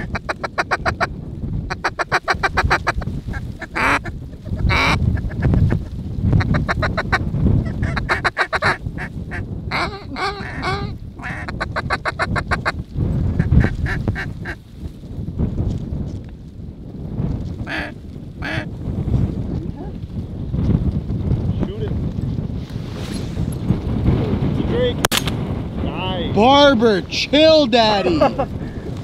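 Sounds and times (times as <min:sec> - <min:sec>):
drawn-out duck calls: 0:00.0 - 0:01.1, 0:01.7 - 0:12.8, 0:13.4 - 0:14.6, 0:17.6 - 0:18.7
ducks quacking: 0:00.0 - 0:01.1, 0:01.7 - 0:12.7, 0:13.4 - 0:14.6, 0:17.7 - 0:18.7
wind rumble on microphone: 0:00.0 - 0:29.0.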